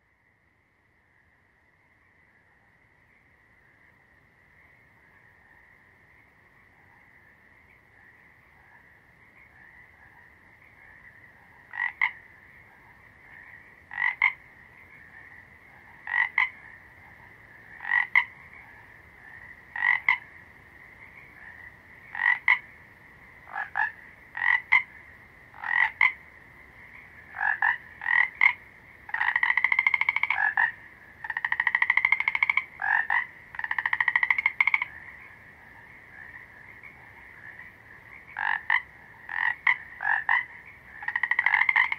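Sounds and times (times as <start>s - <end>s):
frogs croaking: 0.0s - 41.9s
frog rattling calls: 9.4s - 22.8s, 23.4s - 41.9s.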